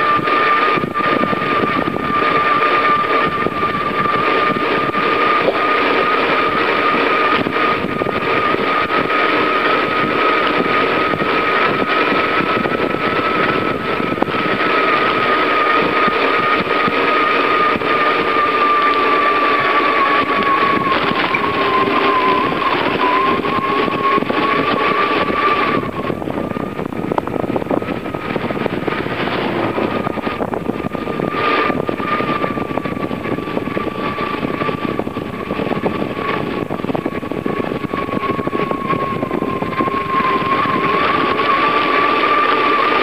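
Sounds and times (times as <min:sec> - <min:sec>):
bicycle tyre noise on road: 0:00.0 - 0:43.0
thin high whine: 0:00.0 - 0:43.0
wind rushing: 0:00.0 - 0:43.0.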